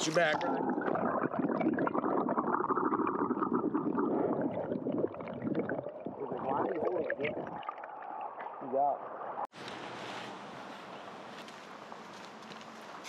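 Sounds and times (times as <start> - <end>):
underwater river gurgling: 0.0 - 9.5.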